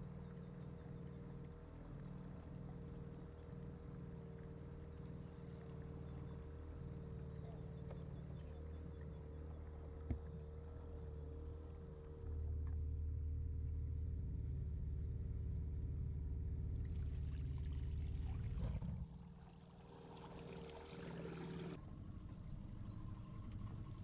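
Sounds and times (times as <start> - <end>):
boat engine drone: 16.4 - 24.0.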